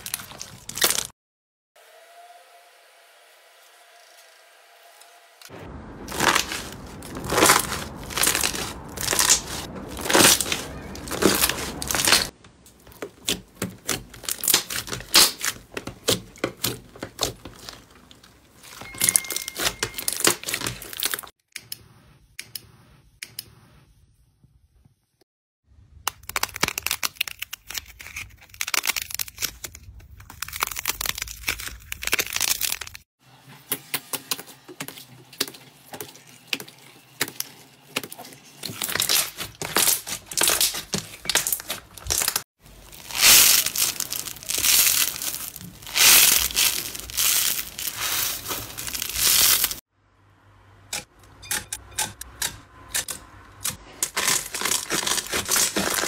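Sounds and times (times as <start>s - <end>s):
slime clicking and crackling: 6.1s - 18.4s, 26.0s - 33.0s, 37.2s - 49.8s, 54.0s - 56.0s.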